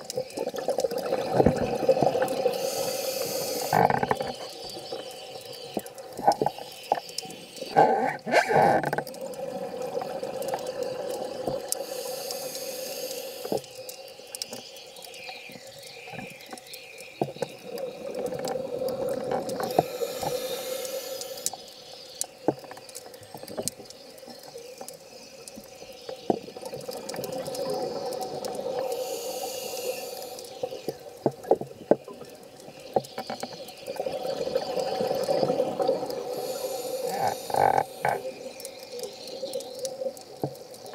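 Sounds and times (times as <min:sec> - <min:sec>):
regulator hissing inhales: 0:02.4 - 0:03.8, 0:11.7 - 0:13.7, 0:19.6 - 0:21.6, 0:28.8 - 0:30.9, 0:36.2 - 0:38.2
bubbling exhales: 0:34.0 - 0:38.6.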